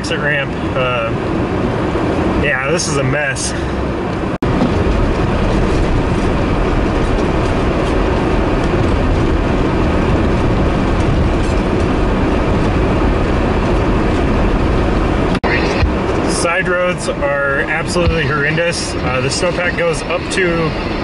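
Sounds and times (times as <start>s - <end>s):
car tyres pushing through snow: 4.4s - 16.9s.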